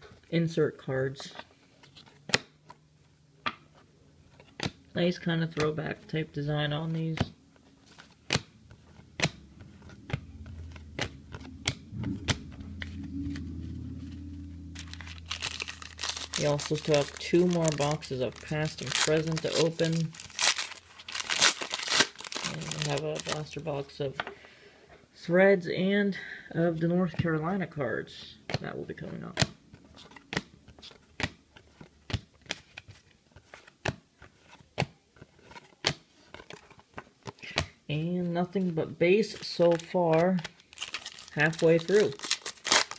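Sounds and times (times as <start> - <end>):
low steady hum: 0.0 - 32.0
card rustles and clicks: 6.9 - 14.1, 14.8 - 23.6, 29.4 - 37.8, 39.3 - 42.9
trading cards clicking: 9.2 - 12.5.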